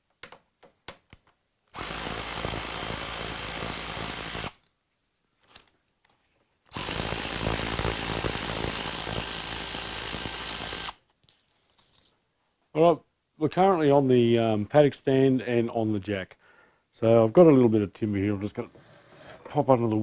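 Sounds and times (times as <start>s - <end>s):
power drill spinning bolts: 6.7s - 11.0s.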